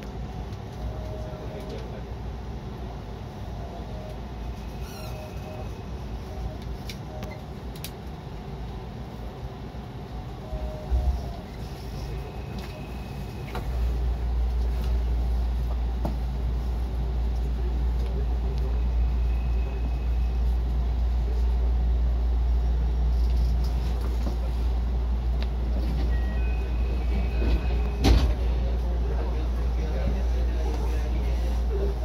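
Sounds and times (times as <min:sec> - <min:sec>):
train cabin rumble: 0:00.0 - 0:32.0.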